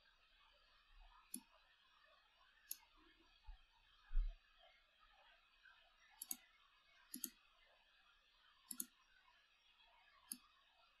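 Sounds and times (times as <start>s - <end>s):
computer mouse clicking: 2.7s - 2.9s, 6.2s - 6.5s, 7.1s - 7.4s, 8.7s - 9.0s, 10.2s - 10.5s.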